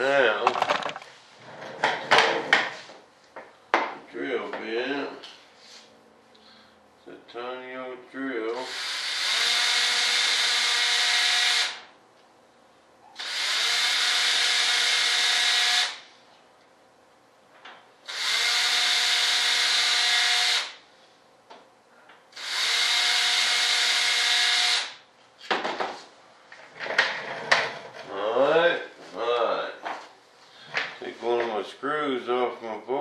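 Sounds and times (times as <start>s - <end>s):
small power tool motor: 8.6s - 11.9s, 13.2s - 16.0s, 18.1s - 20.8s, 22.3s - 25.0s.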